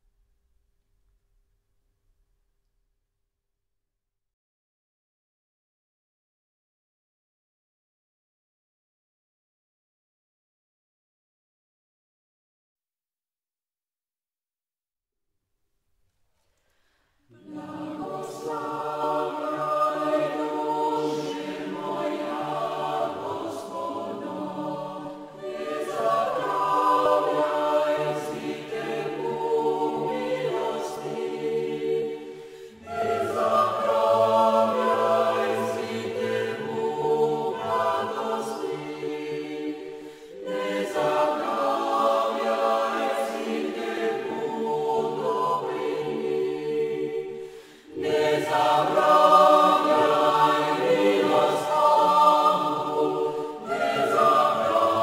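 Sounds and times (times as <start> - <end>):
choir singing sustained chords: 17.2 - 55.0.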